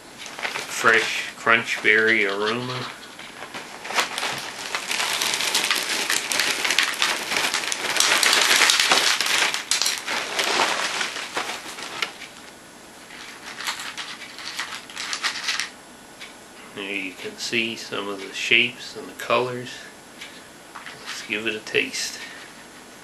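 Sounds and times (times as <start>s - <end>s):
plastic bag crinkling: 0.2s - 12.5s, 13.1s - 15.8s
cereal pouring out of box: 3.9s - 12.1s.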